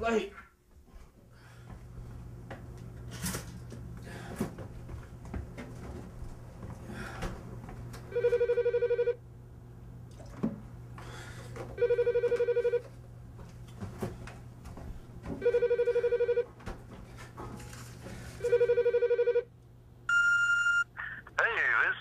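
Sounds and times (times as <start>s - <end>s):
telephone ringing: 8.1s - 9.2s, 11.8s - 12.9s, 15.4s - 16.5s, 18.4s - 19.5s, 20.1s - 20.9s.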